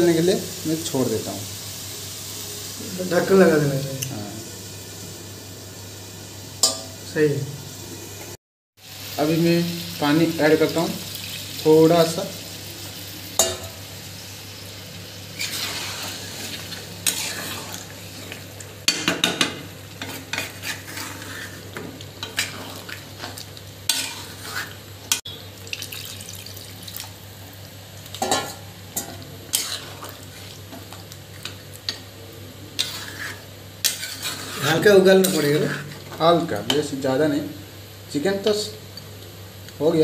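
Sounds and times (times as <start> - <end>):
faint sizzle: 0.0 - 40.0
metal spatula scraping pan: 15.4 - 25.2, 28.2 - 30.6, 32.8 - 36.2.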